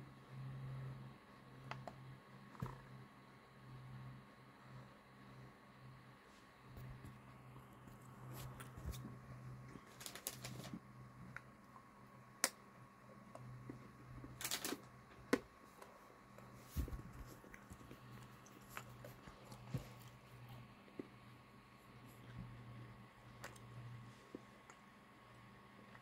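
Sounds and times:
low steady hum: 0.0s - 26.0s
faint clicks and taps: 1.6s - 3.0s.

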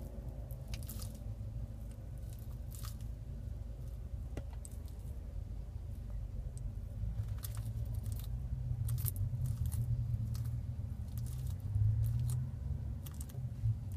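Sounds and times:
steady low hum: 0.0s - 13.9s
lizard crunching leaves: 0.5s - 1.2s, 2.1s - 3.1s, 7.1s - 13.4s.

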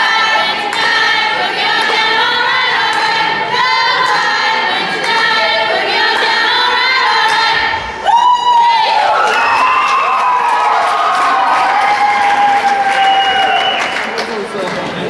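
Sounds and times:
crowd chanting in unison: 0.0s - 8.0s.

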